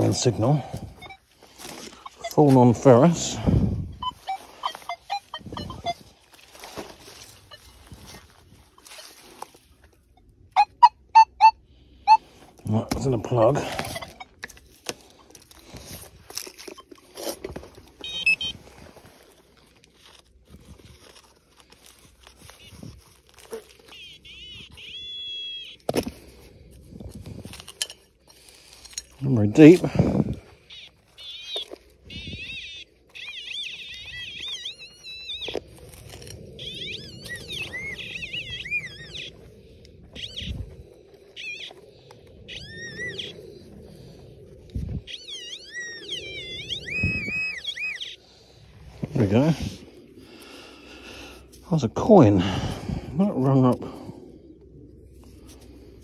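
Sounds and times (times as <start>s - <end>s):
soil crunching while digging: 0.0s - 10.6s, 12.2s - 54.3s
metal detector tones warbling: 0.0s - 14.6s, 16.6s - 19.2s, 22.4s - 26.5s, 27.8s - 50.6s
rapid high-pitched electronic beeping: 3.3s - 6.0s, 18.0s - 18.5s, 30.7s - 35.5s, 36.6s - 39.3s, 45.1s - 48.2s.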